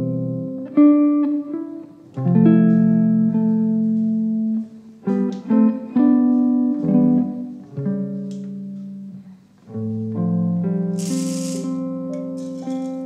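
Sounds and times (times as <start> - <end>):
plucked guitar music: 0.0 - 13.0.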